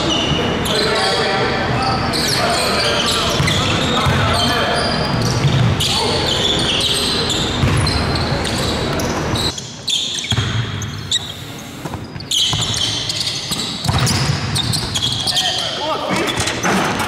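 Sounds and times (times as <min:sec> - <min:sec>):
sneakers squeaking: 0:00.0 - 0:17.0
ball bouncing: 0:03.4 - 0:04.3, 0:07.6 - 0:08.0, 0:10.3 - 0:10.8, 0:11.8 - 0:15.0.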